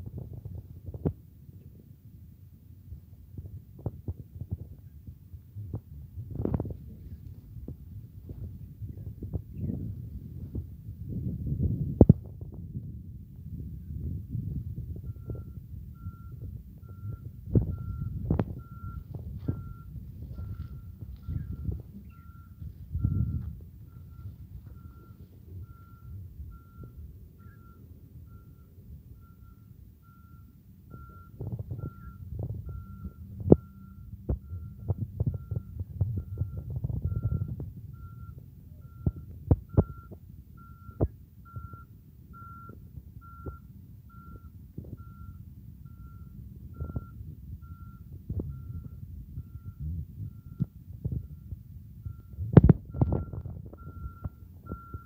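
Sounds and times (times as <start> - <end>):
low rumble: 0.0 - 55.0
high-pitched electronic beeps: 15.0 - 55.0.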